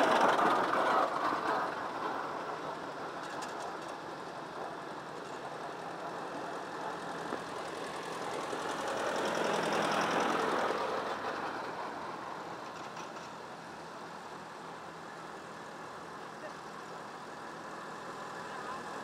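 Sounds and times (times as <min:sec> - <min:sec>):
distant tractors running: 0:00.0 - 0:19.0
tractor engine driving past: 0:05.1 - 0:13.7.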